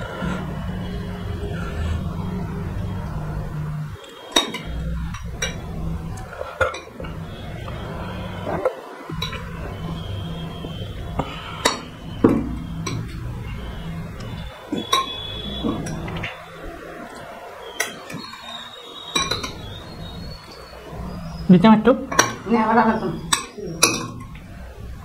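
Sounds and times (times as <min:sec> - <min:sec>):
low steady hum: 0:00.0 - 0:25.0
ladle clinking on glass and metal: 0:19.1 - 0:19.7, 0:23.3 - 0:24.4.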